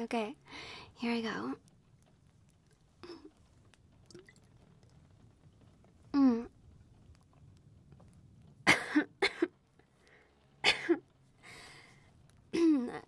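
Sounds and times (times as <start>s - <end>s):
woman coughing: 8.7s - 9.5s, 10.6s - 11.0s.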